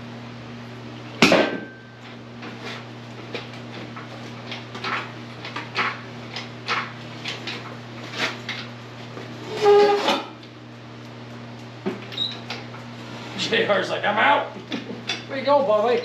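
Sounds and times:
loud squeak: 0:09.4 - 0:10.3.

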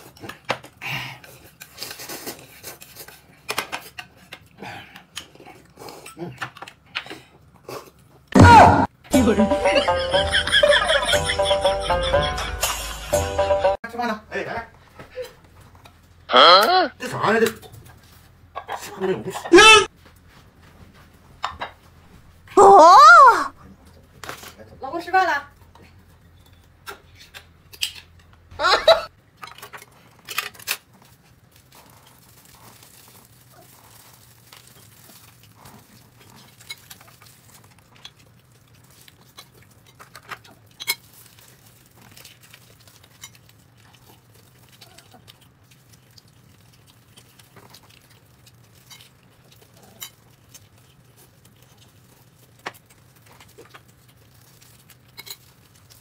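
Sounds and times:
packaging crinkling and tearing: 0:29.8 - 0:56.0.

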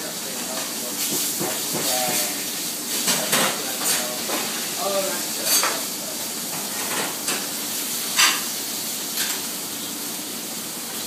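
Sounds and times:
steaks sizzling in pans: 0:00.0 - 0:11.0
tongs and pans clinking: 0:03.0 - 0:04.5, 0:05.4 - 0:05.9, 0:08.1 - 0:08.5.

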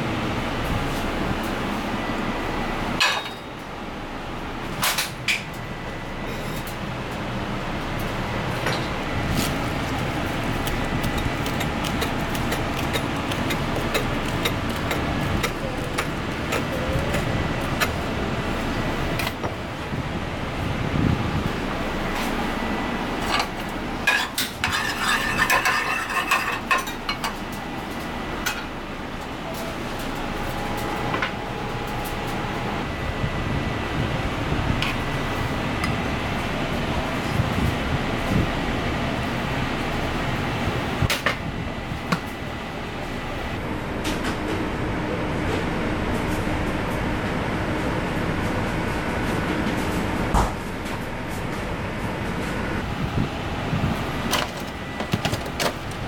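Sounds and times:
kitchen ventilation rushing: 0:00.0 - 0:56.0.

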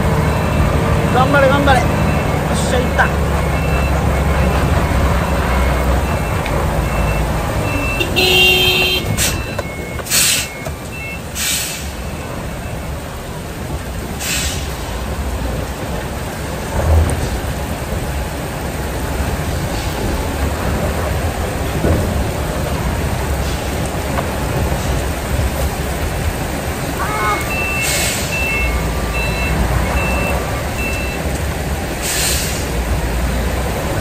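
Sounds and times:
heavy rain on cab: 0:00.0 - 0:34.0
truck diesel engine: 0:00.0 - 0:34.0
reversing alarm beeps: 0:00.2 - 0:11.3, 0:27.2 - 0:31.3
air brake hisses: 0:10.1 - 0:10.6, 0:11.4 - 0:12.0, 0:14.2 - 0:14.7, 0:27.8 - 0:28.4, 0:32.0 - 0:32.8.

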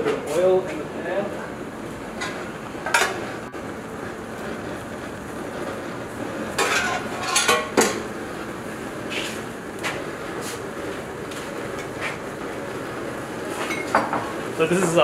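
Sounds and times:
steady kitchen hiss: 0:00.0 - 0:15.0
metal pans clattering: 0:06.6 - 0:08.0.

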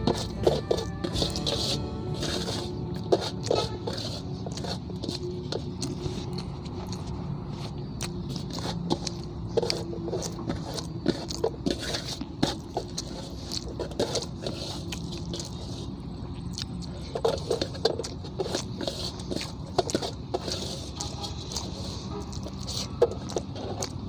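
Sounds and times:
fingers scraping metal basin: 0:00.0 - 0:06.1, 0:08.3 - 0:15.9, 0:17.1 - 0:24.0
man chewing: 0:00.0 - 0:24.0.

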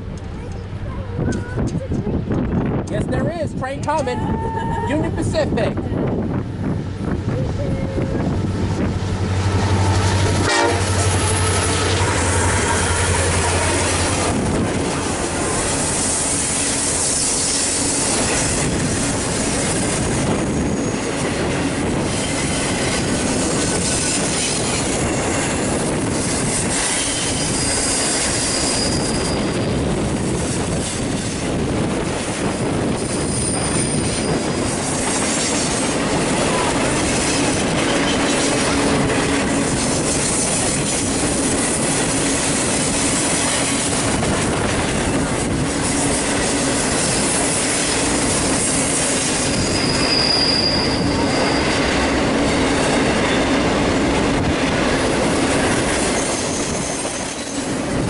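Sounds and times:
diesel locomotive hum: 0:00.0 - 0:58.0
train wheels rumbling on rails: 0:00.0 - 0:58.0
wheel squeals: 0:26.7 - 0:29.8, 0:33.0 - 0:34.6, 0:49.2 - 0:52.0.

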